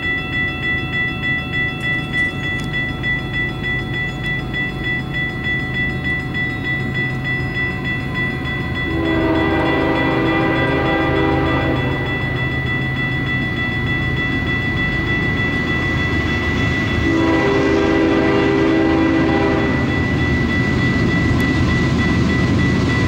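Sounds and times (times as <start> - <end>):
crossing bell ringing: 0.0 - 23.0
freight train rumble: 0.0 - 23.0
locomotive air horn chord: 8.9 - 12.4, 17.1 - 19.9.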